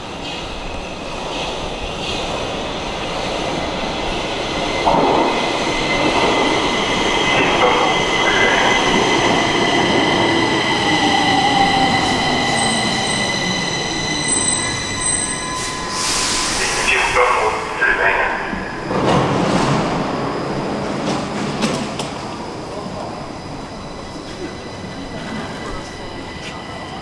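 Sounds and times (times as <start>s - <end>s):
metro train rumble: 0.0s - 27.0s
wheels and brakes squealing: 9.6s - 16.8s.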